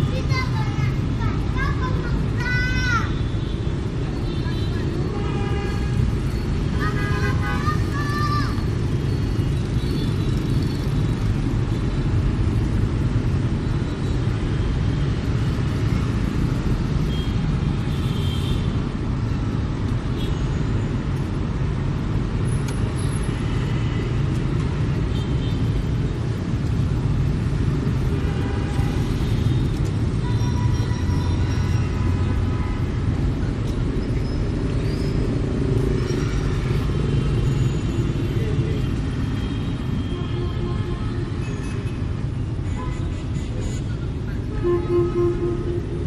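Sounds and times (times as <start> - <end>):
cars passing: 0.0 - 18.0, 18.6 - 46.0
low traffic rumble: 0.0 - 46.0
motorbikes passing: 5.7 - 17.9, 21.0 - 40.6.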